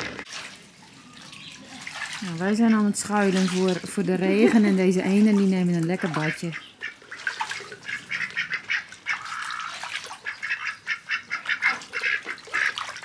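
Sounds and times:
ducks splashing water: 0:00.0 - 0:13.0
ducks quacking: 0:02.2 - 0:05.3, 0:05.9 - 0:13.0.

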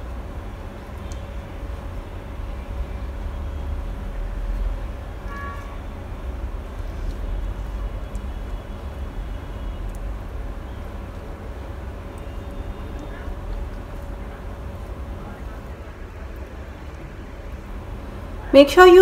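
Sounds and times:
faint constant hum: 0:00.0 - 0:19.0
short pitched tone: 0:05.3 - 0:05.8.

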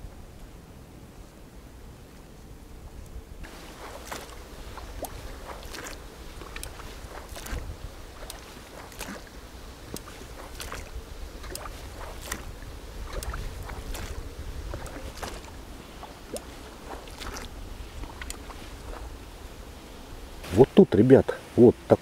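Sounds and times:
low wind rumble on microphone: 0:00.0 - 0:20.9
boat splashing through water: 0:03.4 - 0:21.0.

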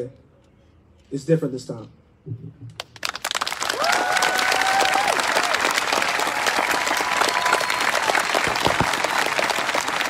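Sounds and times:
crowd applauding: 0:02.8 - 0:10.0
crowd whooping: 0:03.6 - 0:10.0.

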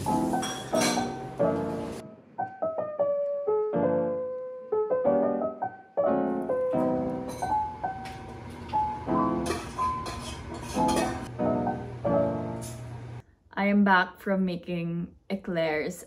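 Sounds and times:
piano melody: 0:00.0 - 0:13.2.

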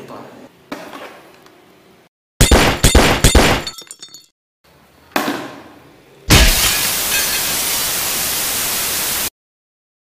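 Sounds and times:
glass shattering crash: 0:02.4 - 0:04.3, 0:06.3 - 0:07.9.

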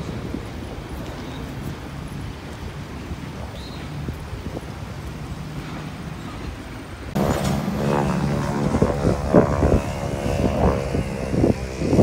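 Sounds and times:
propeller airplane engine droning: 0:04.5 - 0:12.0.

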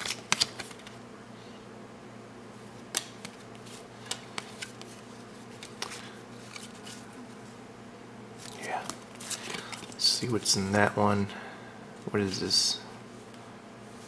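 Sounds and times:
cards snapping and swishing: 0:00.0 - 0:01.0, 0:02.8 - 0:07.1, 0:08.4 - 0:10.0
faint steady hum: 0:00.0 - 0:14.0.

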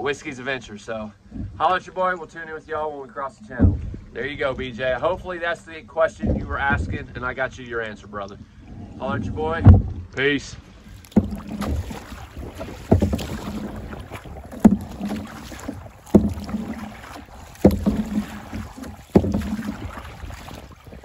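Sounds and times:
canoe paddle strokes: 0:01.1 - 0:21.0
water rushing: 0:06.1 - 0:21.0.

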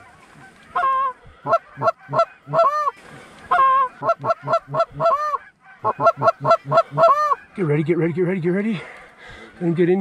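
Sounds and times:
goose call clucks and honks: 0:00.0 - 0:07.8.

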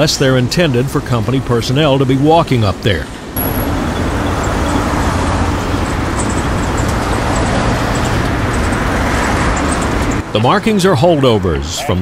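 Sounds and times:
cars and truck passing: 0:00.0 - 0:12.0
freight train cars rolling: 0:00.0 - 0:12.0.

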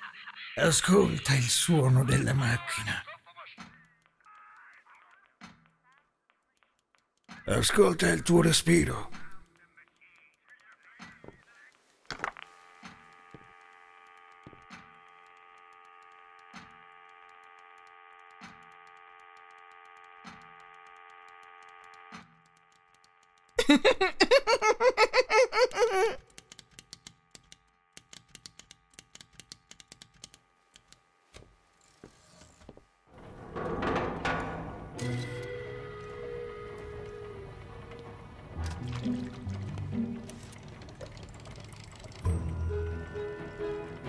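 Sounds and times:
faint clicks: 0:03.6 - 0:07.5, 0:09.1 - 0:23.6
machine hum of held tones: 0:12.7 - 0:23.5, 0:33.3 - 0:44.0.

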